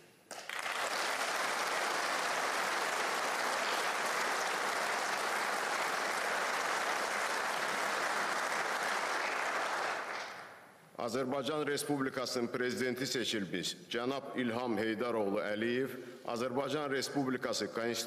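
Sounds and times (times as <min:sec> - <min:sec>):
audience applauding: 0:00.3 - 0:10.6.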